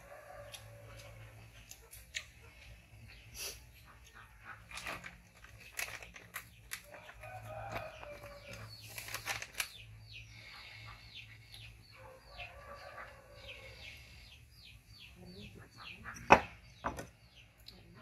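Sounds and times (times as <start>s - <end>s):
chicken clucking: 15.2s - 16.3s.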